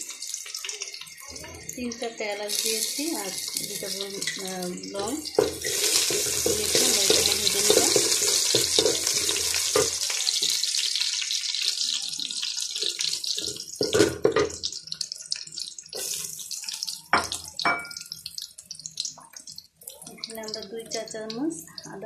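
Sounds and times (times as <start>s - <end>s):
onions sizzling in hot oil: 0.0s - 22.0s
wooden spatula scraping pot: 5.3s - 9.9s.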